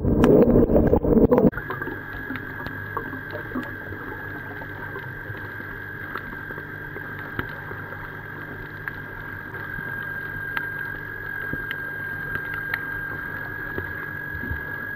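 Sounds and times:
high whine: 0.0s - 8.5s
low hum: 0.0s - 14.9s
underwater clicks and crackles: 0.0s - 14.9s.

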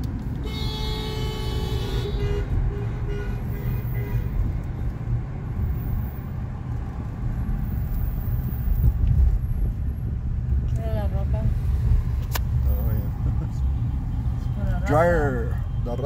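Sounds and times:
car interior rumble: 0.0s - 16.0s
car horn toots: 0.4s - 4.4s.

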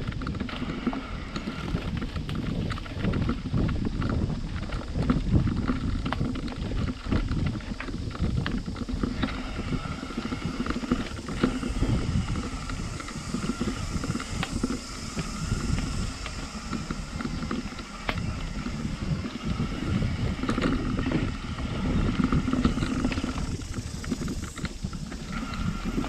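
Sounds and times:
bike frame rattling: 0.0s - 26.0s
bike tyres rumbling on dirt: 0.0s - 26.0s
knocks over bumps: 0.0s - 26.0s
wind on microphone: 0.0s - 26.0s
steady high buzz: 6.6s - 26.0s.

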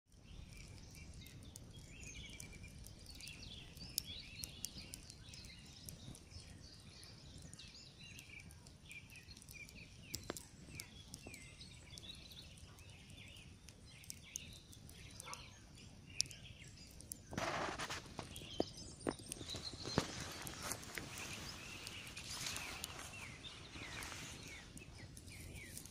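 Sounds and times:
campfire crackling and popping: 0.1s - 25.9s
small birds twittering: 0.1s - 25.9s
rustle: 19.4s - 25.9s.

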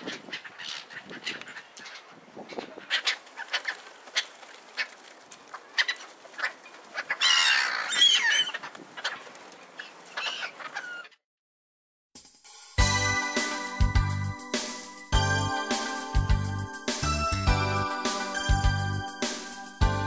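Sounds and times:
gulls squawking: 0.0s - 11.2s
wings fluttering: 0.0s - 11.2s.

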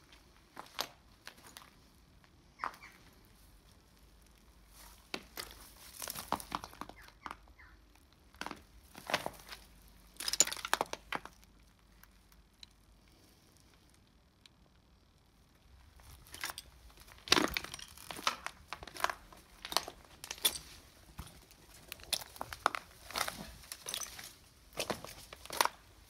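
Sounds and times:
footsteps crunching on broken glass: 0.6s - 1.8s, 4.7s - 7.4s, 8.4s - 11.5s, 16.0s - 26.0s.

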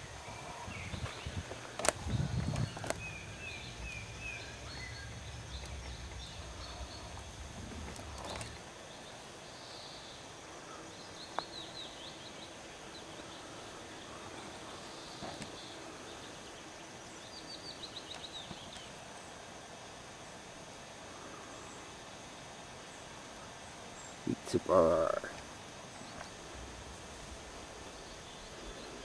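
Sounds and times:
low rumbling: 0.0s - 8.6s
songbirds chirping: 0.0s - 29.0s.

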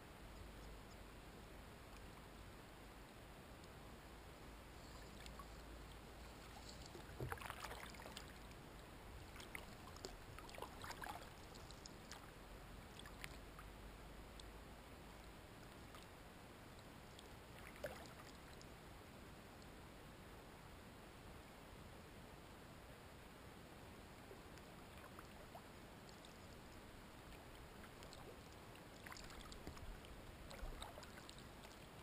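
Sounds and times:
paddle splashes and drips: 4.8s - 12.3s, 12.9s - 13.6s, 17.1s - 18.7s, 24.6s - 32.0s.

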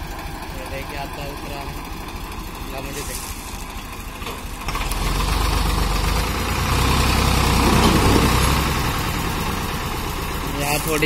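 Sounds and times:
diesel tractor engine under load: 0.0s - 11.0s.

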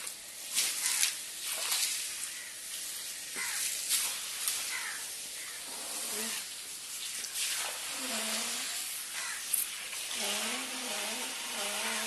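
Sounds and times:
water splashing on wet ground: 0.0s - 12.0s
high pressure water spray: 5.6s - 12.0s.

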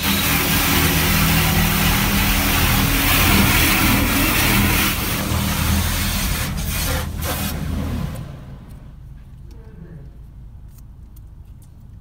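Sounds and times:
water jets spraying on car: 0.0s - 9.0s
low machinery hum: 0.0s - 11.2s.

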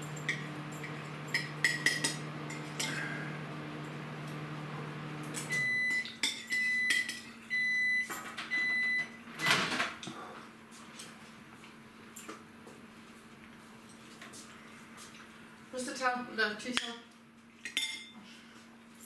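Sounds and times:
microwave beeping: 0.0s - 10.0s
microwave oven humming: 0.0s - 16.4s.

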